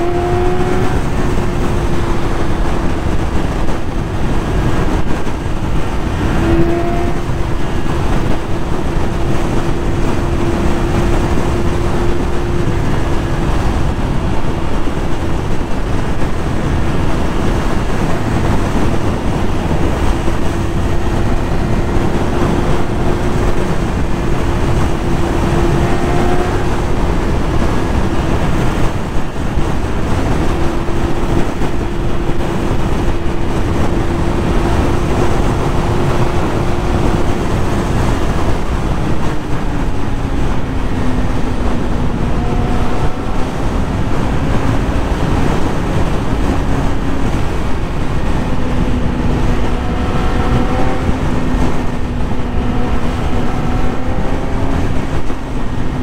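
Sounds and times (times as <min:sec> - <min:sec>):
motorcycle engine at high revs: 0:00.0 - 0:56.0
wind rush on microphone: 0:00.0 - 0:56.0.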